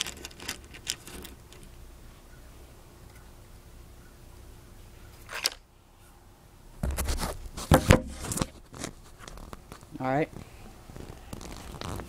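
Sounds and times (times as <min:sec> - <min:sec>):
handling noise on microphone: 0:00.0 - 0:01.8, 0:06.8 - 0:12.0.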